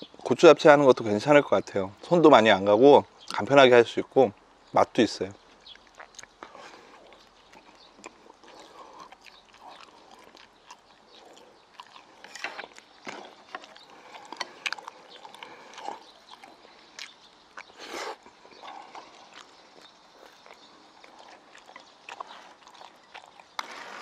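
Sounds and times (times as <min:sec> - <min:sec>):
wet chewing mouth smacks: 0:05.5 - 0:23.7.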